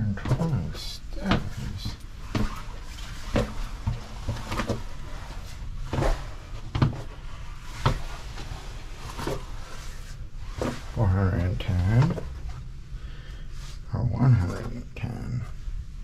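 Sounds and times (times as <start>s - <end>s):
footsteps on brick stairs: 0.0s - 8.5s.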